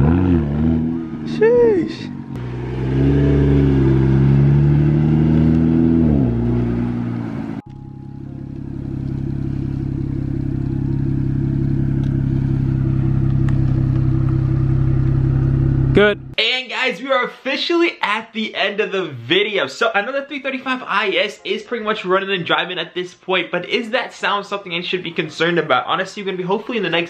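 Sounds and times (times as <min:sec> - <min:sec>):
car engine accelerating and idling: 0:00.0 - 0:16.4.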